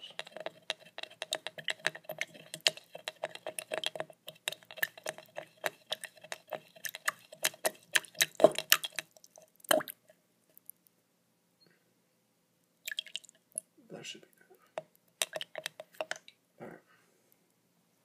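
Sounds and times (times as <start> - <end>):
skewer tapping against cup: 0.0 - 9.1.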